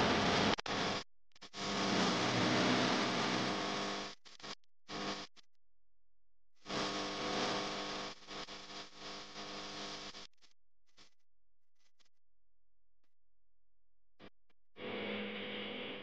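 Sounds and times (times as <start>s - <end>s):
boat engine drone: 0.0s - 0.6s.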